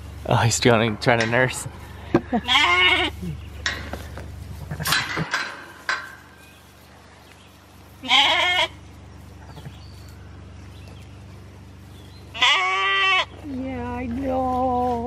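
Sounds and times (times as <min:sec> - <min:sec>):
sheep bleating: 0:02.4 - 0:03.5, 0:08.0 - 0:08.8, 0:12.3 - 0:13.5.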